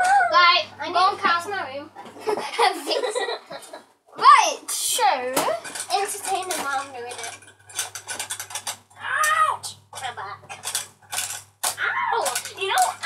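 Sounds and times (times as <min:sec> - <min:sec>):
small objects clattering: 0:05.3 - 0:13.0.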